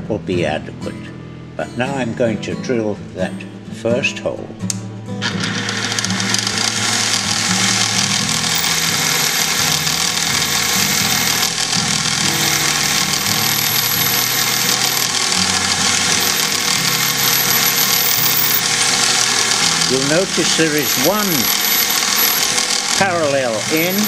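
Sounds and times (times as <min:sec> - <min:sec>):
drill cutting into metal: 0:05.2 - 0:24.0
milling machine spindle running: 0:05.2 - 0:24.0.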